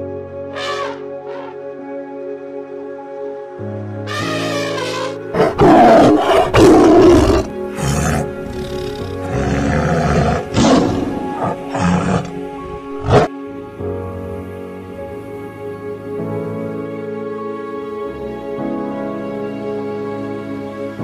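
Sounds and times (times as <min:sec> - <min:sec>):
background music: 0:00.0 - 0:21.0
tiger roaring and growling: 0:04.1 - 0:13.3.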